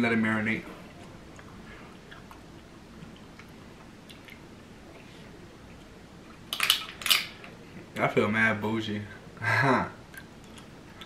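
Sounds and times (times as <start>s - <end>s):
person chewing gummy candy: 10.1s - 11.0s.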